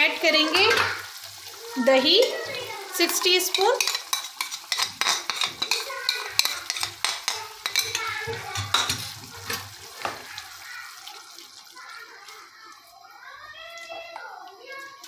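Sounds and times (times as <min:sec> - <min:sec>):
gravy sizzling in a saucepan: 0:00.0 - 0:15.0
spoon scraping and tapping pan: 0:03.0 - 0:10.4.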